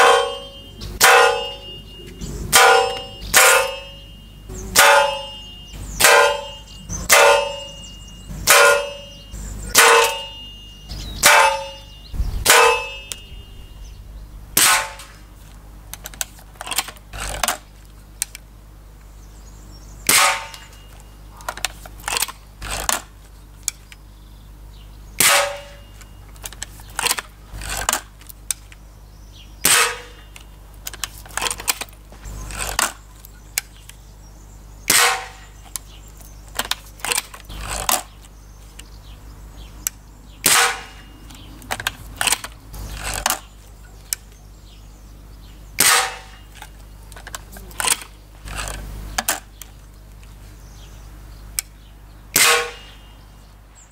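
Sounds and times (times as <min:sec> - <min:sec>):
air rifle shots: 0:11.2 - 0:15.3, 0:20.1 - 0:20.7, 0:25.2 - 0:25.8, 0:40.4 - 0:41.1, 0:45.8 - 0:46.4, 0:52.4 - 0:53.0
rifle barrel clicks and clacks: 0:41.6 - 0:42.6.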